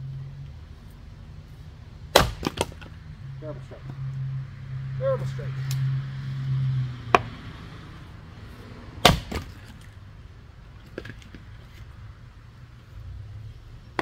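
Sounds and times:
splitting tool chopping wood: 0:02.1 - 0:02.9, 0:09.0 - 0:09.8.

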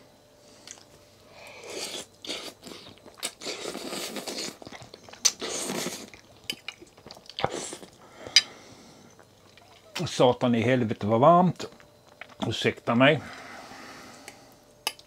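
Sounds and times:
person slurping noodles: 0:01.6 - 0:04.6, 0:05.4 - 0:06.2.

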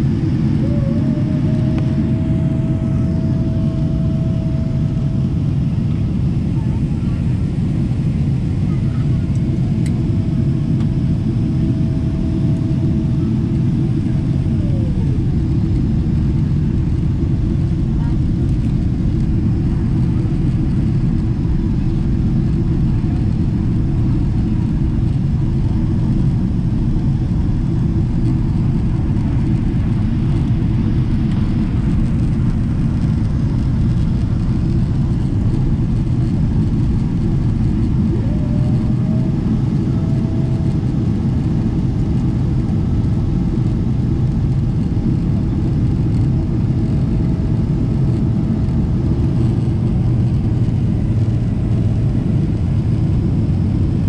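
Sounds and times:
high-pitched whine: 0:00.0 - 0:08.6
aircraft cabin engine rumble: 0:00.0 - 0:54.0.

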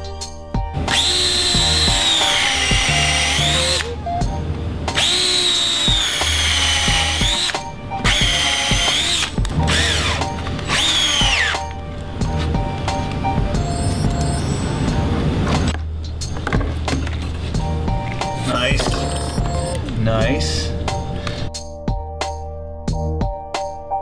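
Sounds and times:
cordless drill boring into wood: 0:00.9 - 0:03.9, 0:05.0 - 0:11.7.

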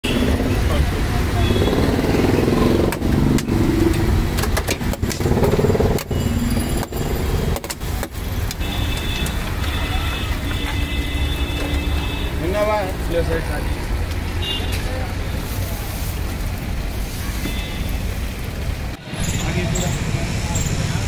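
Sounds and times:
road traffic rumble: 0:00.0 - 0:21.0
sharp clicks and knocks: 0:02.8 - 0:06.2, 0:06.8 - 0:09.4.

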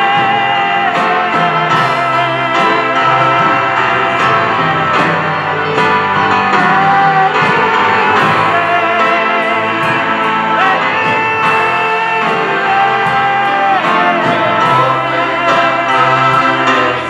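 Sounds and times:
drum kit beat: 0:00.0 - 0:17.0
praise band playing: 0:00.0 - 0:17.0.

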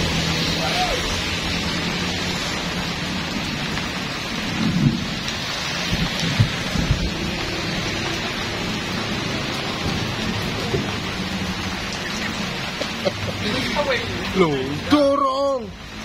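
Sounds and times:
heavy rain splashing on road: 0:00.0 - 0:16.0
low thumps and rumbles: 0:01.8 - 0:12.0.

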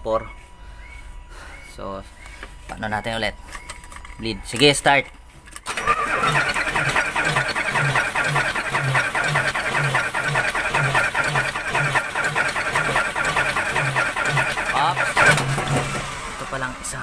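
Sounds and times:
starter cranking diesel engine: 0:05.6 - 0:17.0.

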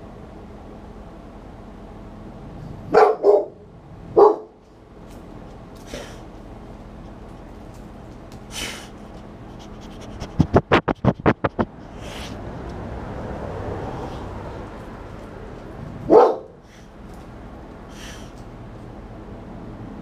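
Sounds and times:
dog barking: 0:02.9 - 0:03.6, 0:04.2 - 0:04.6, 0:16.0 - 0:16.6
dog sniffing: 0:08.4 - 0:12.4.

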